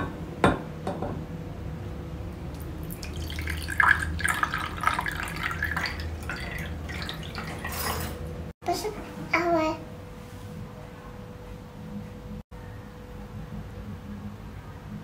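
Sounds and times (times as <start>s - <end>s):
coffee pouring into cup: 2.5s - 8.2s.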